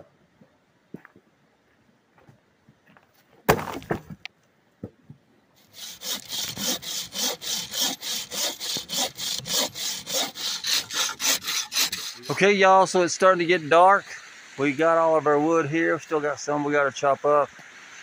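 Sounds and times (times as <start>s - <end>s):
bow saw cutting branch: 5.6s - 12.8s.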